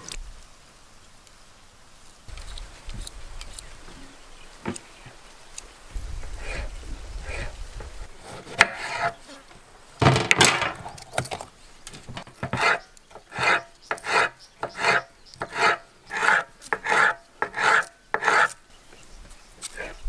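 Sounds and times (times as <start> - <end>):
knife slicing on wooden board: 8.2 - 9.2, 12.4 - 18.6.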